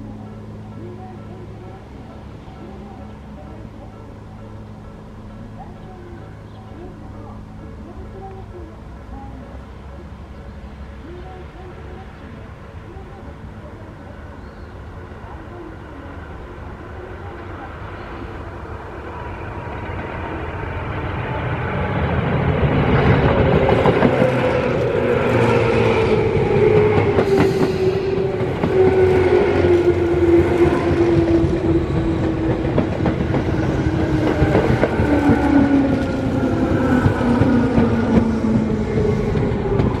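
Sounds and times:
train wheels rumbling on rails: 14.9s - 40.0s
train motor whine: 19.0s - 40.0s.

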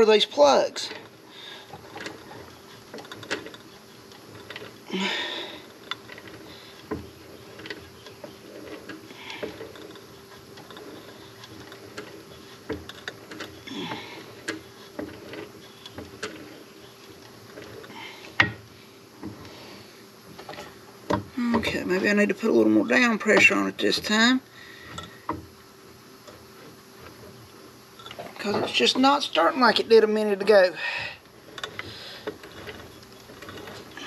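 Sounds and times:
scraping or rustling: 0.0s - 25.4s, 26.2s - 34.0s
faint steady hum: 0.0s - 34.0s.

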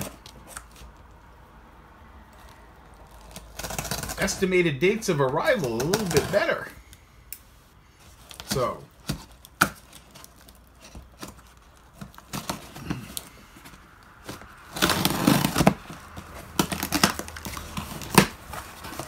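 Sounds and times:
packing tape ripping: 2.4s - 4.5s, 8.2s - 19.0s
fingernails scratching tape: 2.9s - 4.4s, 14.3s - 19.0s.

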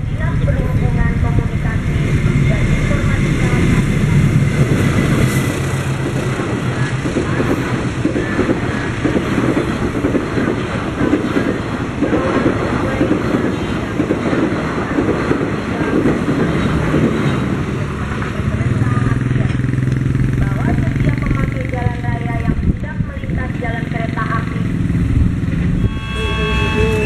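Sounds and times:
diesel locomotive passing: 0.0s - 27.0s
train wheels on rails: 0.0s - 27.0s.

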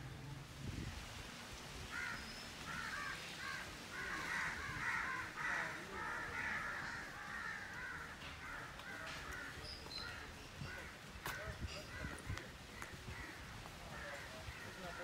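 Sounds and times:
chorus of birds calling: 1.9s - 15.0s.

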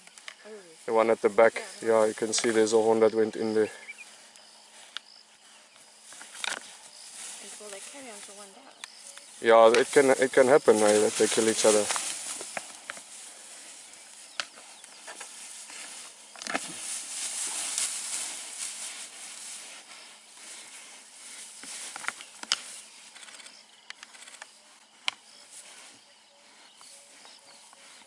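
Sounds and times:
grass rustling: 0.0s - 28.0s.

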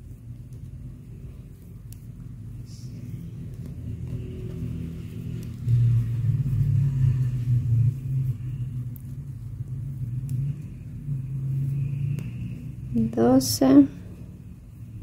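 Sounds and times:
low motor-like rumble: 0.0s - 15.0s.

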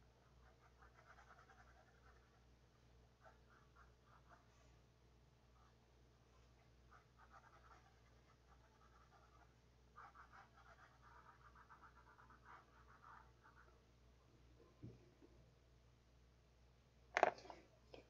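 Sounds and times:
low steady hum: 0.0s - 18.0s
pencil scratching on paper: 0.2s - 2.5s, 3.2s - 4.6s, 6.6s - 13.7s.

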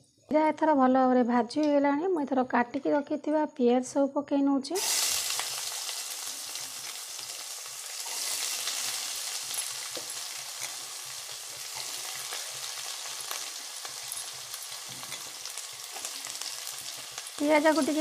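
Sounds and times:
onions sizzling in hot oil: 4.8s - 18.0s
wooden spatula scraping and tapping: 14.0s - 16.2s.

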